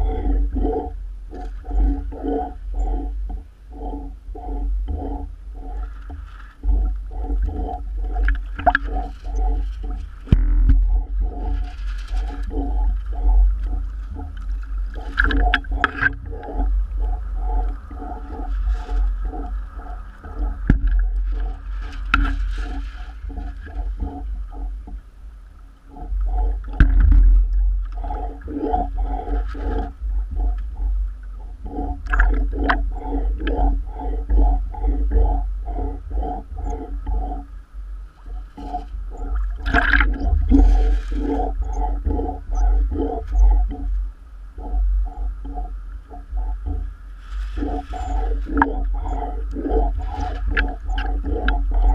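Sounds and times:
low rumble of wind: 0.0s - 51.9s
water sloshing and gurgling: 0.0s - 51.9s
pulsing knock: 6.6s - 17.6s, 20.3s - 22.4s.

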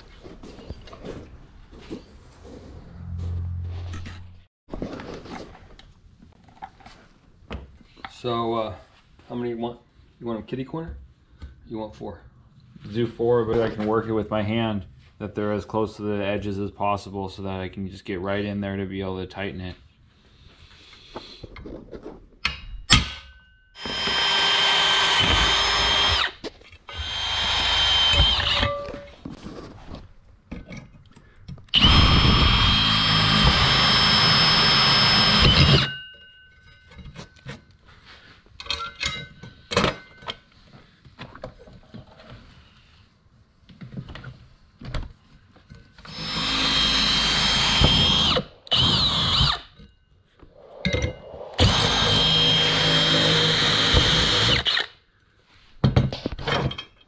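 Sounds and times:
electric drill whining: 23.8s - 28.8s, 31.7s - 35.9s, 46.0s - 49.8s, 51.6s - 55.0s.

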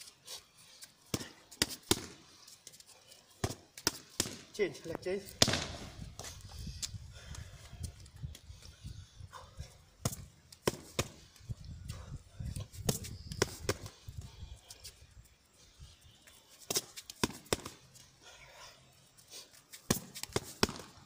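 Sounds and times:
boxing gloves smacking mitts: 1.0s - 2.3s, 3.4s - 4.6s, 5.4s - 6.3s, 10.0s - 11.4s, 16.6s - 17.8s, 19.7s - 21.0s.

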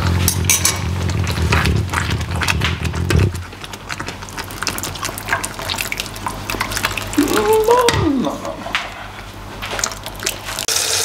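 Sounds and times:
risotto bubbling in a pan: 0.0s - 8.6s
steady low hum: 0.0s - 10.6s.

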